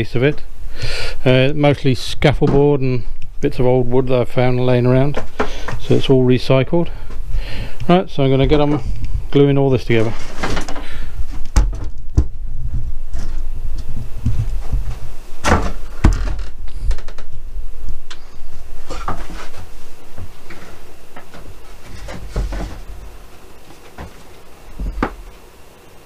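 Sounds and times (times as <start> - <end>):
low handling rumble: 0.0 - 10.2
wooden boards knocking and clattering: 10.2 - 12.4, 14.2 - 17.3, 20.2 - 25.4.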